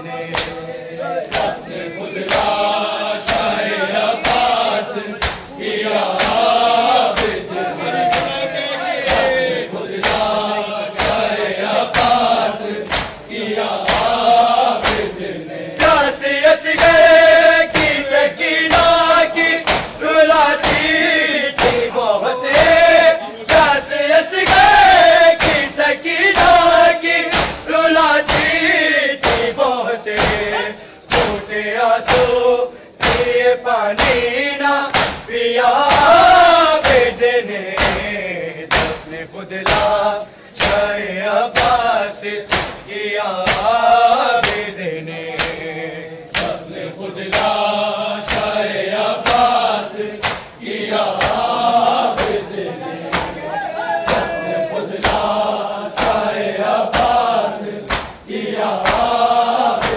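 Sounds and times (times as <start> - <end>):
men chanting in unison: 0.0 - 59.9
hands slapping chests: 0.3 - 1.6, 2.2 - 2.6, 3.2 - 3.6, 4.2 - 4.6, 5.2 - 8.4, 9.0 - 10.4, 11.0 - 15.2, 16.7 - 22.9, 23.5 - 23.8, 24.4 - 25.8, 26.4 - 32.4, 33.0 - 33.4, 34.0 - 35.3, 36.8 - 40.0, 40.6 - 41.0, 42.5 - 43.8, 44.4 - 44.7, 45.4 - 45.7, 46.3 - 46.7, 47.3 - 47.6, 48.2 - 49.6, 50.2 - 53.5, 54.1 - 54.4, 55.0 - 55.3, 55.9 - 59.9.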